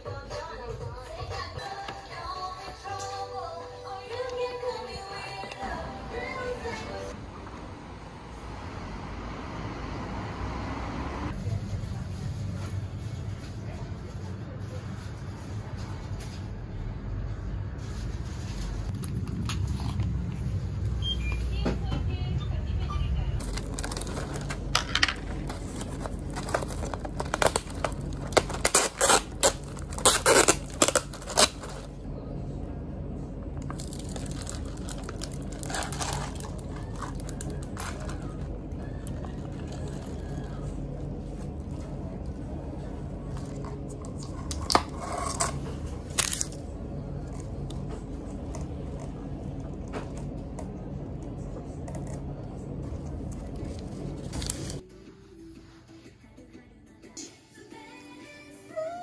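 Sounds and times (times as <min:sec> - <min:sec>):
low background hum: 0:00.0 - 0:59.0
ice shifting in cup: 0:23.4 - 0:31.9, 0:33.6 - 0:40.6
plastic cup crackling: 0:23.4 - 0:31.9, 0:33.6 - 0:40.6, 0:43.4 - 0:46.6.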